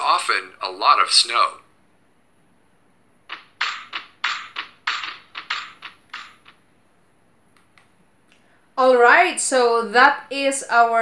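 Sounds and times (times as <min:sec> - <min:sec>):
computer keyboard typing: 0:03.3 - 0:06.6.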